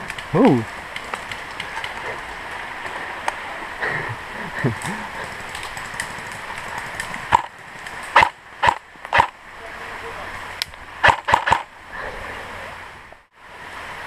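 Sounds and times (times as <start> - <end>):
outdoor background hiss: 0.0 - 14.0
airsoft gun firing: 8.2 - 9.3, 11.0 - 11.7.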